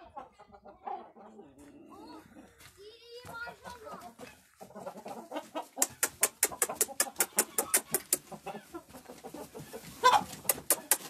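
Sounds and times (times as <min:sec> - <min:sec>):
chickens clucking: 0:00.0 - 0:11.0
loud chicken call: 0:05.4 - 0:08.7
sharp ticks: 0:05.8 - 0:08.3, 0:10.4 - 0:11.0.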